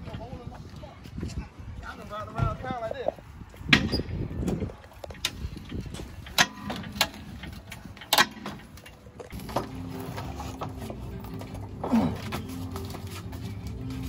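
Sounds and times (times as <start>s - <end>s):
background music sustained tones: 8.8s - 14.0s.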